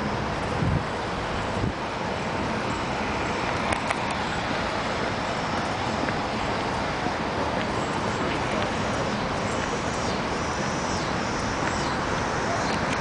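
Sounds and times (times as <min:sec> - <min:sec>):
passing cars traffic noise: 0:00.0 - 0:13.0.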